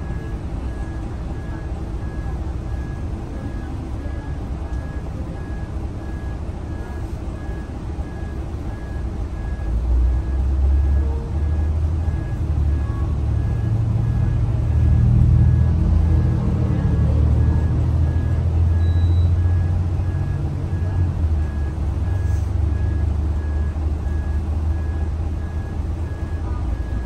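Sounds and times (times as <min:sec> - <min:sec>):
bus engine running: 0:00.0 - 0:27.0
thin high beeps: 0:18.1 - 0:19.4.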